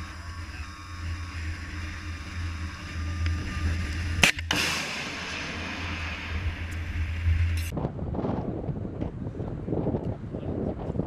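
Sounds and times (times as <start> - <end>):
rocket motor rushing hiss: 0.0 - 7.7
wind rumble on microphone: 0.0 - 11.0
missile launch bang: 4.2 - 7.7.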